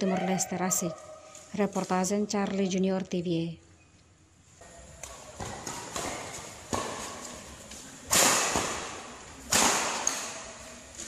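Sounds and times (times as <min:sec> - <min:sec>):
rackets hitting shuttlecock: 0:04.6 - 0:11.0.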